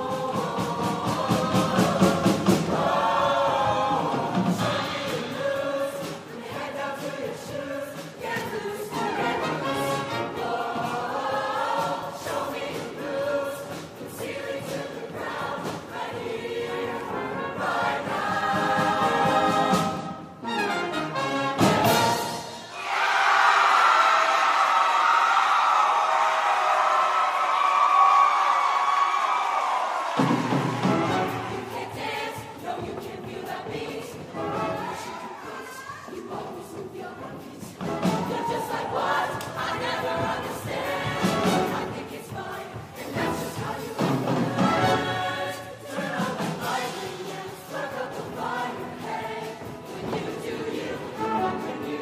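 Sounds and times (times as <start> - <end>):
choir singing: 0.0 - 52.0
live band playing: 30.2 - 31.9.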